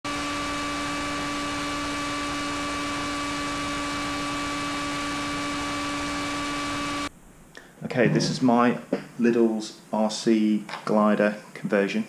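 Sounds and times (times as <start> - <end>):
electric motor hum: 0.0 - 7.1.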